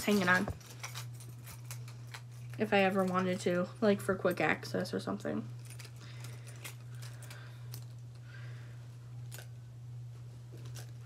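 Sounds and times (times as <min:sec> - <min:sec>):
keys clicking and rattling: 0:00.0 - 0:03.4, 0:05.6 - 0:08.0
steady low hum: 0:00.0 - 0:11.0.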